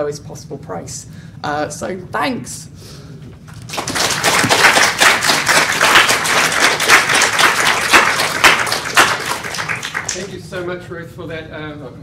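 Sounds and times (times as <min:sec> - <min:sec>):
audience applauding: 0:03.7 - 0:10.4.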